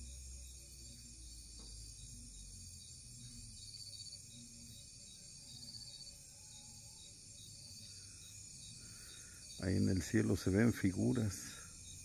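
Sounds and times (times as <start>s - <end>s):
crickets and insects chirping: 0.0s - 12.0s.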